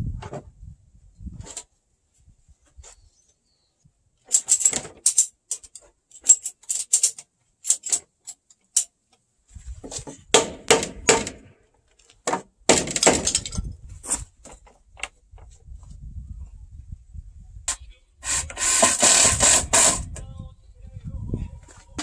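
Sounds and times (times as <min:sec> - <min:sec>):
wooden knocks and clatter: 0:09.8 - 0:15.7
scraping strokes on wood: 0:18.2 - 0:20.1.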